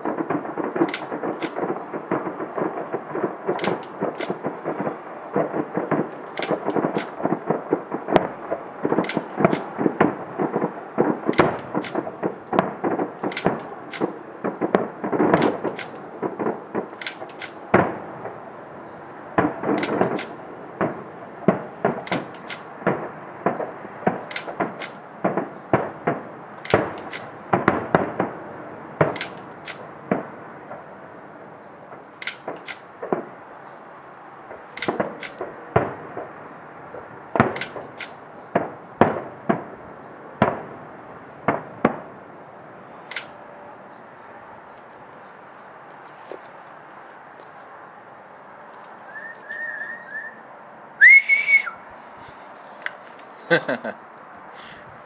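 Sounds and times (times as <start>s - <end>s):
firework shells bursting: 0.0s - 18.6s, 19.3s - 30.9s, 31.9s - 33.4s, 34.4s - 39.8s.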